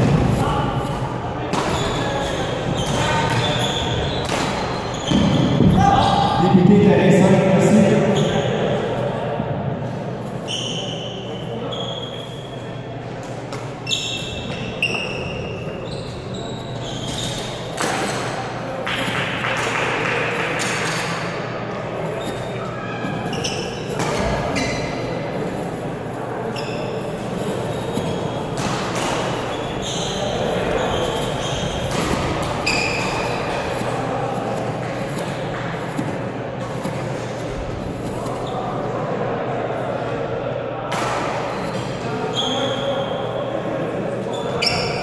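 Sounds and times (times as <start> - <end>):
murmur of echoing voices: 0.0 - 45.0
shoes squeaking on wooden floor: 0.5 - 6.2, 10.3 - 12.6, 13.8 - 18.3, 22.0 - 38.7, 44.2 - 45.0.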